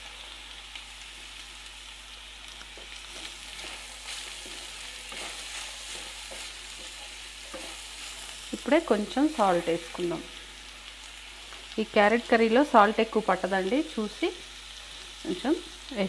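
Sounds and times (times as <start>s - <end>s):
vegetables sizzling in oil: 0.0s - 16.0s
spatula scraping a pan: 2.7s - 8.5s.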